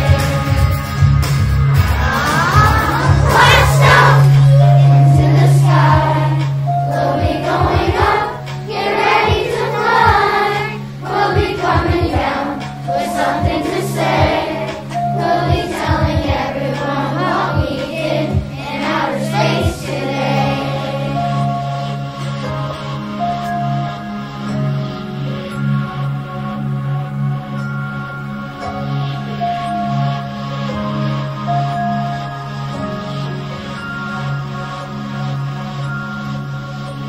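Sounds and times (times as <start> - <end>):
instrumental backing track: 0.0 - 37.0
children's choir singing: 2.0 - 23.0.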